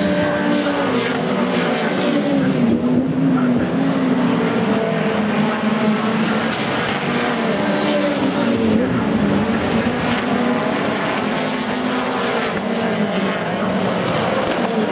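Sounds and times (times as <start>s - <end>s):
race car engines running: 0.0s - 14.9s.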